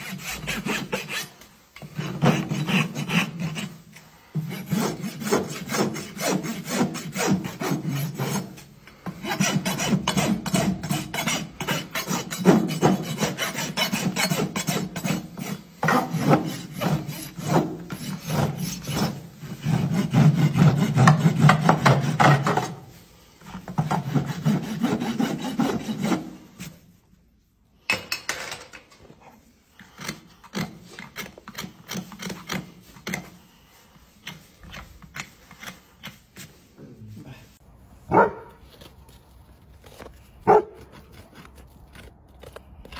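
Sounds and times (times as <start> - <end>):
rasp filing a hoof: 0.0 - 26.8, 29.4 - 36.8, 38.1 - 42.9
soft scattered scrapes: 32.1 - 42.9.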